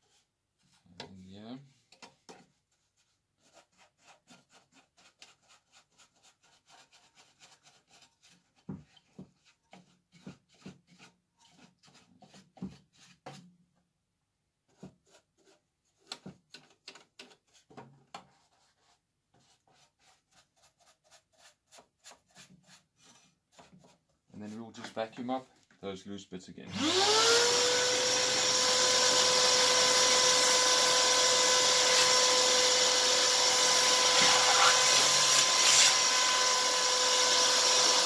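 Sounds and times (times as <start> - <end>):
brush scrubbing metal blades: 34.1 - 36.0.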